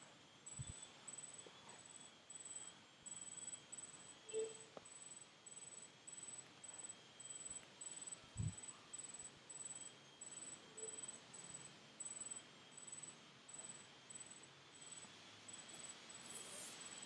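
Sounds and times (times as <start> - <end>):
cricket chirping: 0.0 - 17.0.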